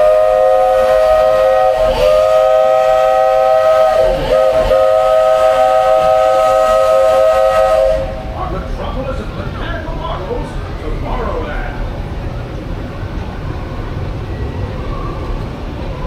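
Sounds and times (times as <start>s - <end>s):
steam locomotive whistle blasts: 0.0s - 8.3s.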